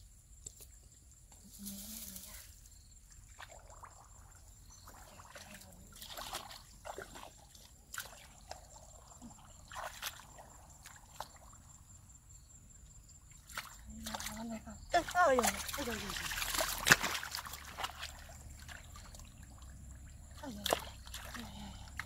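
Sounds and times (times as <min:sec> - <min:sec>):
muddy water sloshing: 0:01.8 - 0:22.0
small splashes and mud squelches: 0:03.0 - 0:11.9, 0:13.2 - 0:22.0.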